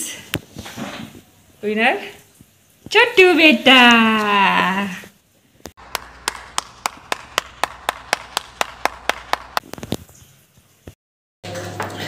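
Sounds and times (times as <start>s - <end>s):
person clapping hands: 5.8s - 9.9s.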